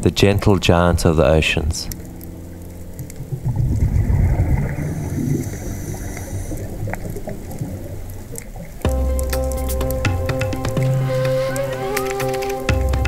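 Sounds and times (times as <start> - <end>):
underwater gurgling rumble: 0.5 - 9.3.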